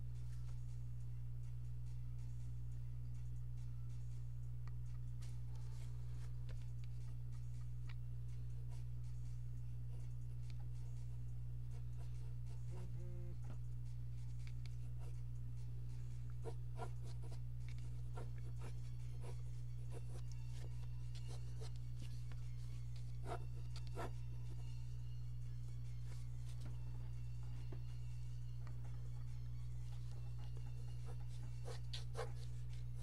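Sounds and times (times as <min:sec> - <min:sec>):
steady low hum: 0:00.0 - 0:33.0
pencil scratching on paper: 0:10.7 - 0:13.1, 0:14.1 - 0:15.3, 0:16.1 - 0:24.6, 0:28.8 - 0:33.0.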